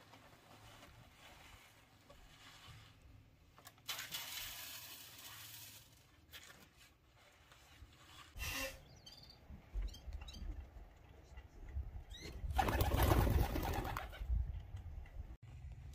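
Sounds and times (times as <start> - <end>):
grain poured onto metal sieve: 3.9 - 6.4.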